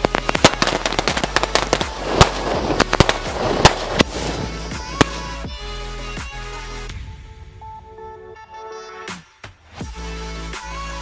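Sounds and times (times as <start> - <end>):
fireworks bangs and crackles: 0.0 - 5.6.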